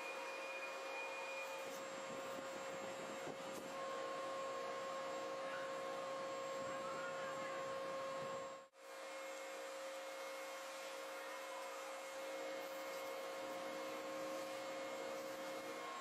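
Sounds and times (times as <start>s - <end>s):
steady hum and hiss: 0.0s - 16.0s.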